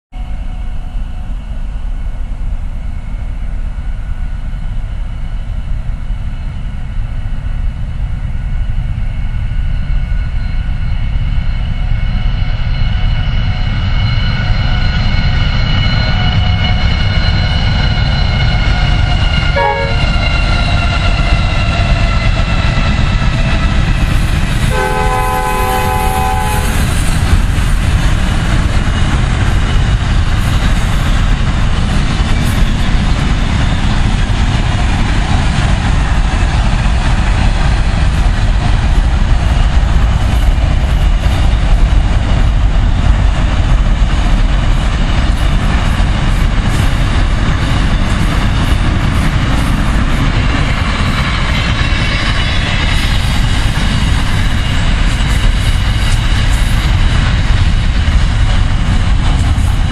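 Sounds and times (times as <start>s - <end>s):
freight train passing: 0.1s - 59.9s
train whine: 0.1s - 59.9s
train horn: 19.4s - 20.7s, 24.6s - 27.1s.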